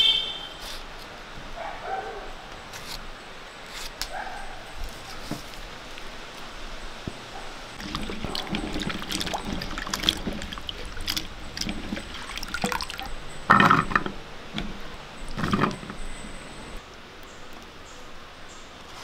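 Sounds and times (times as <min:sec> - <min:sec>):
water sloshing in a vessel: 0:07.1 - 0:16.8.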